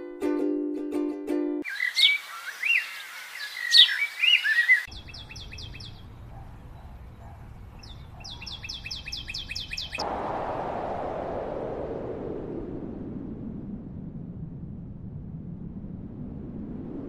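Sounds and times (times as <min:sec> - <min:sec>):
rapid high bird chirps: 0:01.6 - 0:06.2, 0:06.8 - 0:10.0
songbird warbling: 0:01.6 - 0:10.0.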